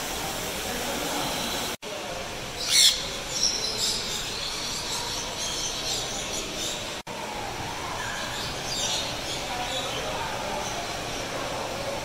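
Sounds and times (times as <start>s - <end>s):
parrot screeching: 2.6s - 3.1s.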